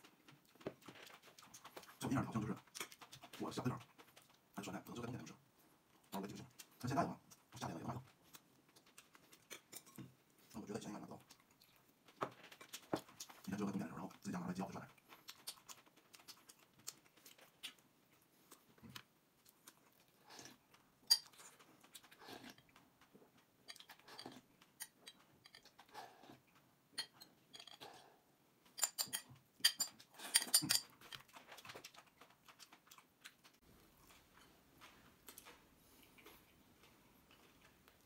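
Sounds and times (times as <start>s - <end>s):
chewing: 0.0s - 38.0s.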